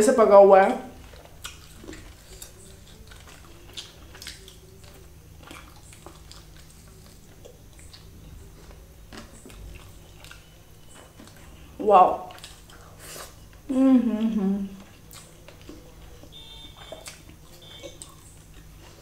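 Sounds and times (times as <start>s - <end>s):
chewing and mouth clicks: 1.0s - 11.6s, 12.2s - 13.7s, 14.8s - 19.0s.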